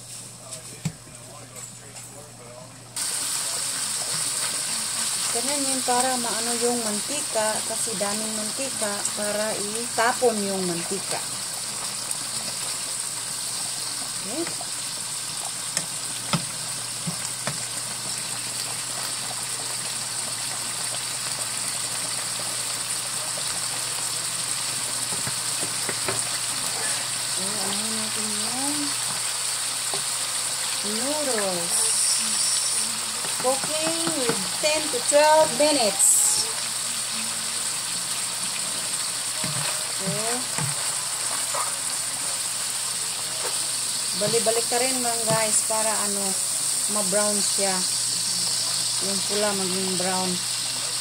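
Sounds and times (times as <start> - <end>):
meat sizzling in frying pan: 3.0 - 51.0
spoon stirring meat: 33.2 - 35.7.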